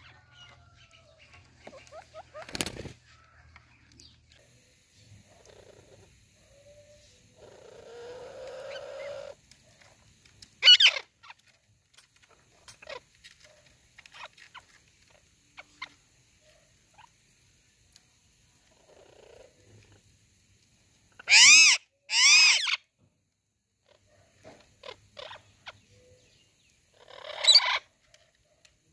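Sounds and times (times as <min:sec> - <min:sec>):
parakeets chattering and screeching: 0:00.0 - 0:03.0, 0:05.0 - 0:16.1, 0:21.1 - 0:22.8, 0:23.8 - 0:26.2, 0:26.9 - 0:28.0.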